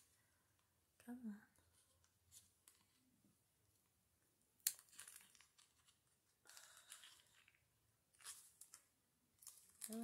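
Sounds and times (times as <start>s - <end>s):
wrapping crinkling: 4.6s - 10.0s.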